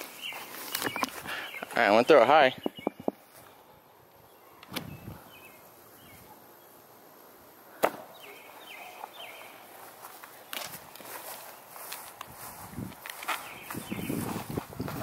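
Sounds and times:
bird chirps: 0:00.1 - 0:03.2, 0:08.1 - 0:09.6, 0:13.4 - 0:14.3
frisbee knocking on lawn: 0:02.6 - 0:03.2.

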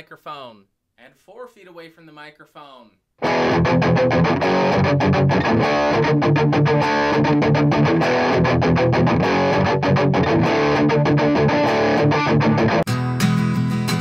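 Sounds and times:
electric guitar strumming chords: 0:03.2 - 0:14.0.

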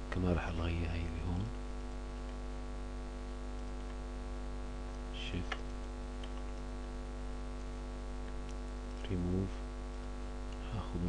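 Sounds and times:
electrical mains hum: 0:00.0 - 0:11.0
faint mouse clicks: 0:04.9 - 0:06.7.

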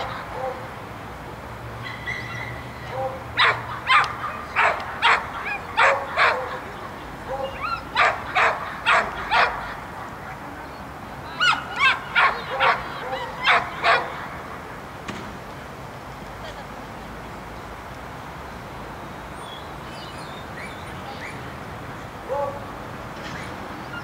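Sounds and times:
dog barking: 0:00.0 - 0:00.7, 0:01.8 - 0:06.7, 0:07.3 - 0:09.7, 0:11.4 - 0:14.2, 0:22.3 - 0:22.7.

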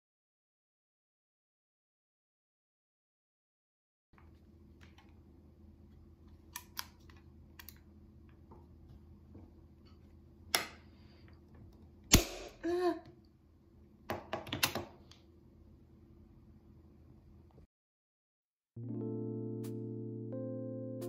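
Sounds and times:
staple gun firing snap: 0:12.1 - 0:12.5.

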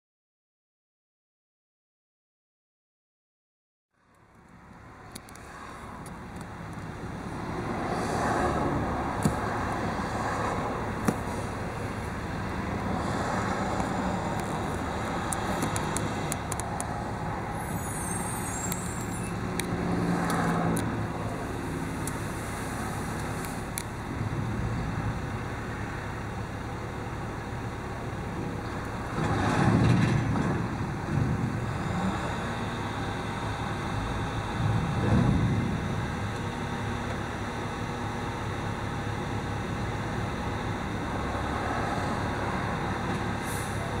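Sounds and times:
diesel truck engine running: 0:04.2 - 0:44.0.

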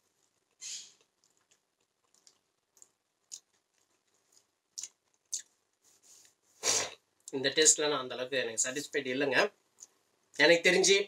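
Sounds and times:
quiet chewing: 0:00.0 - 0:07.4.

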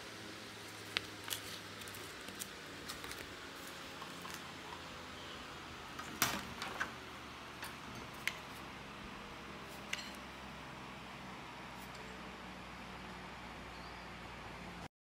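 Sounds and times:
paper rustling: 0:00.7 - 0:04.5.

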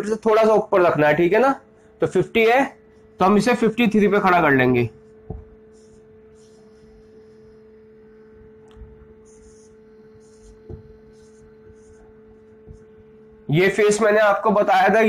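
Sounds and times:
low electrical hum: 0:00.0 - 0:15.0
marker scratching on whiteboard: 0:02.8 - 0:13.2
marker tapping: 0:05.1 - 0:06.6, 0:08.6 - 0:13.0.

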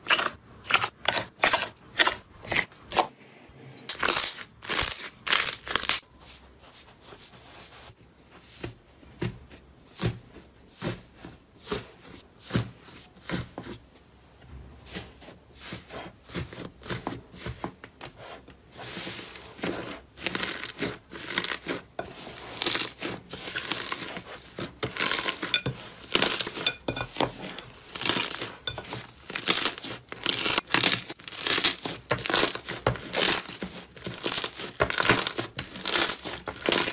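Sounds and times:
slime popping and crackling: 0:27.9 - 0:36.9.

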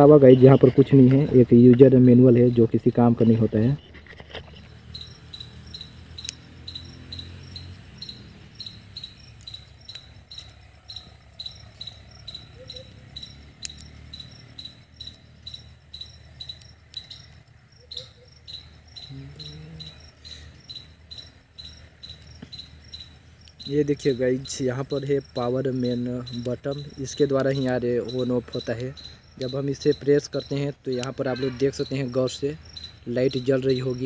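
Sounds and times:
cricket chirping: 0:00.0 - 0:34.0
faint clicks: 0:13.6 - 0:14.3, 0:23.4 - 0:23.7.

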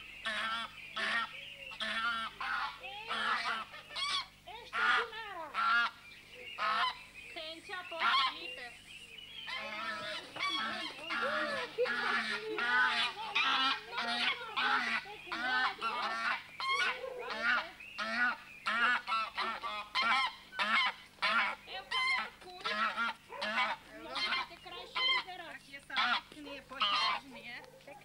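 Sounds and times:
geese honking: 0:00.0 - 0:28.0.

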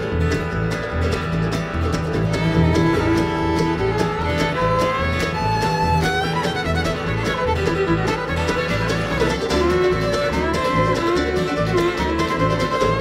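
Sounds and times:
fiddle melody: 0:00.0 - 0:13.0
strummed acoustic guitars: 0:00.0 - 0:13.0
upright bass: 0:00.0 - 0:13.0.

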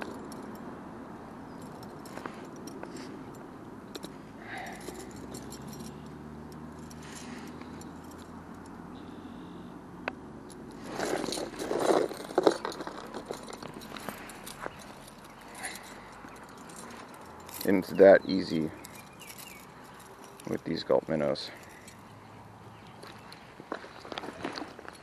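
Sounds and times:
metal chain clinking and rattling: 0:00.0 - 0:09.0, 0:10.4 - 0:25.0
rustling: 0:10.7 - 0:18.0.

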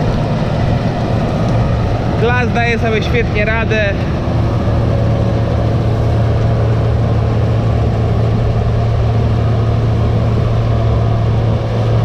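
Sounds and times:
diesel engine humming: 0:00.0 - 0:12.0.

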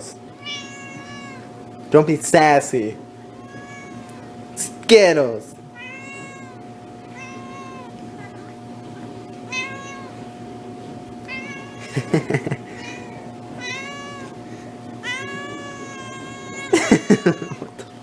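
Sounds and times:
faint steady hum: 0:00.0 - 0:18.0
cat meowing: 0:00.4 - 0:01.5, 0:03.3 - 0:04.3, 0:05.8 - 0:08.5, 0:09.5 - 0:10.2, 0:11.2 - 0:12.1, 0:12.8 - 0:14.4, 0:15.0 - 0:17.7.

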